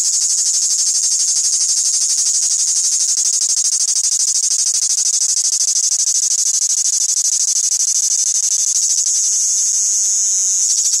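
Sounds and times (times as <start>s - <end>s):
cicada buzzing: 0.0s - 11.0s.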